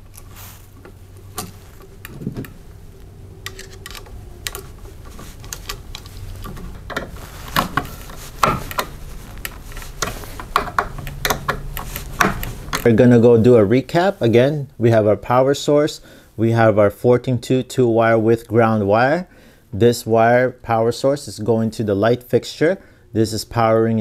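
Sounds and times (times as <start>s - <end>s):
light switch clicks and scrapes: 3.4s - 12.9s.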